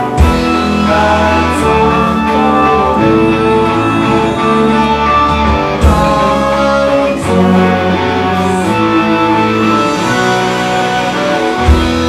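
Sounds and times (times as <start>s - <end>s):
punk rock band playing live: 0.0s - 12.0s.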